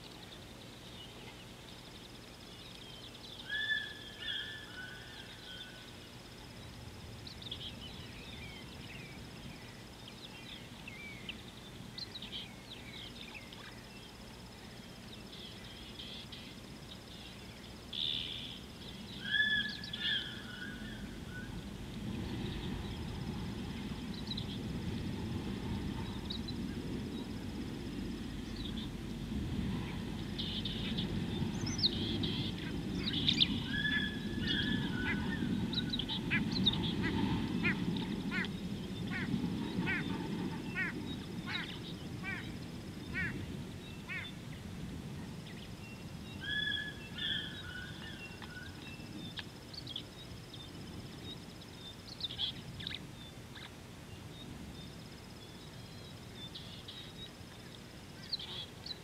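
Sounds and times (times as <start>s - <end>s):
wild birds calling: 0.0s - 59.0s
low rumbling noise: 16.5s - 48.4s.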